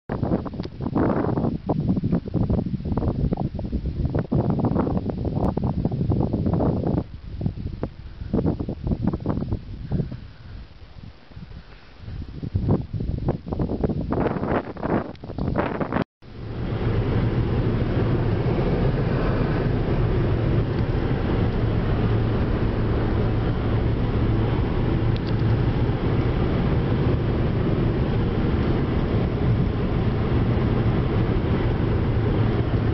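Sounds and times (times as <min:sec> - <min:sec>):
wind noise on microphone: 0:00.1 - 0:32.9
car road noise at highway speed: 0:15.0 - 0:32.9.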